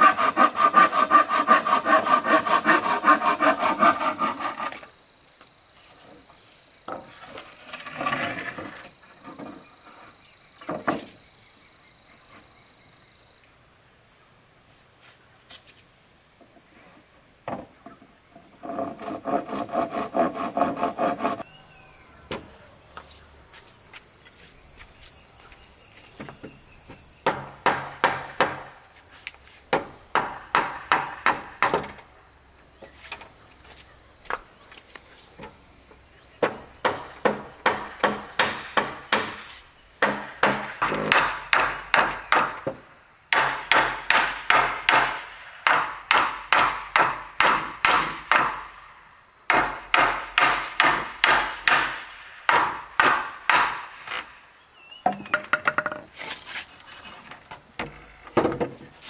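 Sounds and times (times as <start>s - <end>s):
insects buzzing: 0.0s - 59.0s
hammer striking wood: 27.2s - 28.7s, 29.7s - 32.0s, 36.4s - 39.4s, 40.0s - 48.7s, 49.5s - 54.0s, 55.1s - 56.0s.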